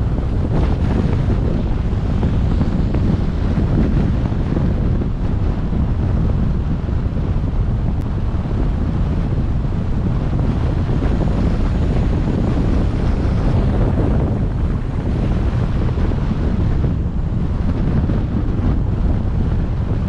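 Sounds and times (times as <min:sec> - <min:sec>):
road noise: 0:00.0 - 0:20.0
wind rumble on microphone: 0:00.0 - 0:20.0.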